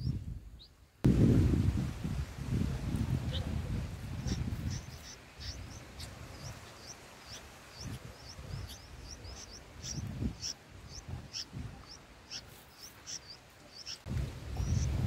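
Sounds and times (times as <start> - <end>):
nestlings begging chirps: 4.2 - 15.0.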